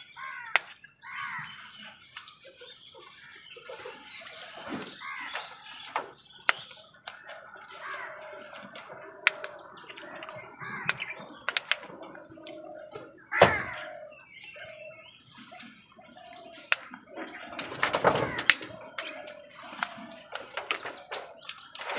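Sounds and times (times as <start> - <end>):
crows cawing: 0.2 - 1.8, 4.9 - 5.6, 7.0 - 14.9
beaks pecking clicks: 0.2 - 2.6, 5.2 - 13.0, 16.5 - 17.0
wings flapping: 16.7 - 21.9.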